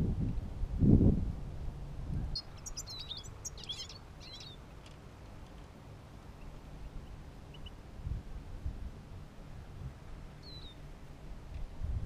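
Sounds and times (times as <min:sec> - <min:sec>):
low steady rumble: 0:00.0 - 0:12.0
finches chirping: 0:02.2 - 0:04.7, 0:06.3 - 0:07.8, 0:10.4 - 0:10.8.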